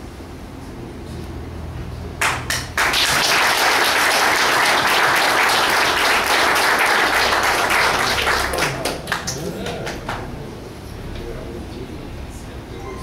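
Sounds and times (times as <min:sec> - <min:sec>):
audience applauding: 0:02.2 - 0:10.4.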